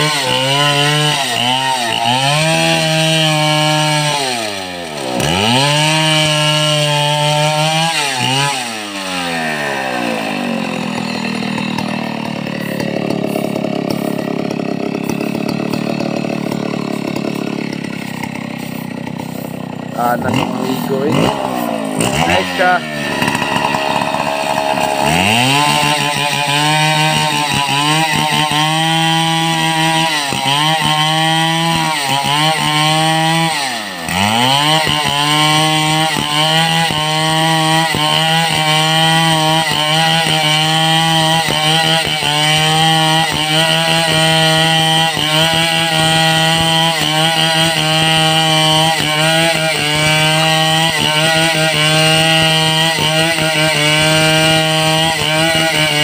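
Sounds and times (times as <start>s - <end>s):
chainsaw sawing through wood: 0.0s - 56.0s.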